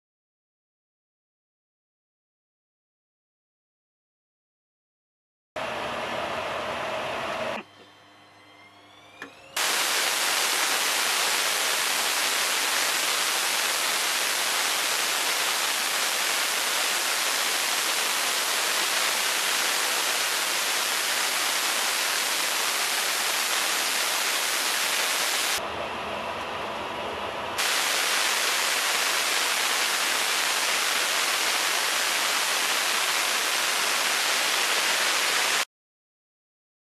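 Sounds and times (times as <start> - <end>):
jet engine whine rising: 5.6 - 34.5
jet engine roaring: 9.6 - 35.6.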